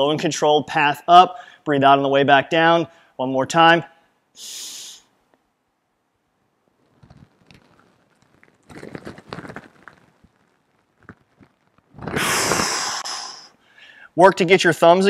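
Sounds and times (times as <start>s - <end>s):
man breathing hard: 12.2s - 14.2s.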